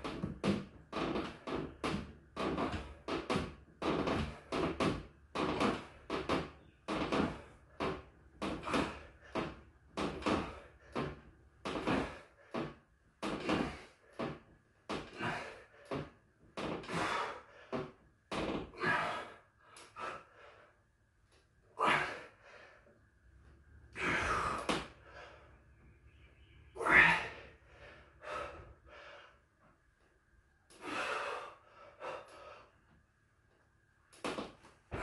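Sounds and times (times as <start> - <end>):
man breathing hard and gasping: 15.0 - 16.2, 16.8 - 18.0, 18.7 - 20.8, 21.8 - 22.9, 26.8 - 29.5, 30.7 - 32.8.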